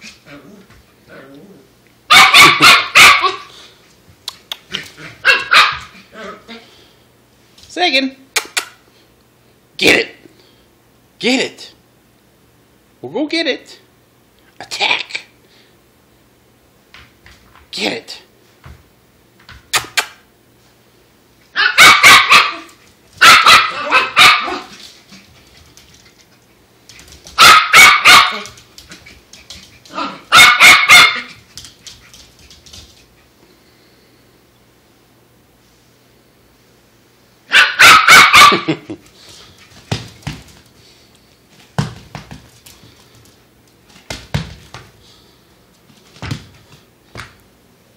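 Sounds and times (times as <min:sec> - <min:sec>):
dog barking rapidly: 0:02.1 - 0:03.5, 0:05.2 - 0:06.0, 0:21.6 - 0:24.7, 0:27.4 - 0:28.6, 0:29.9 - 0:31.4, 0:37.5 - 0:38.8
puppy pouncing on wooden floor: 0:39.6 - 0:40.7, 0:41.5 - 0:45.0, 0:45.8 - 0:47.4.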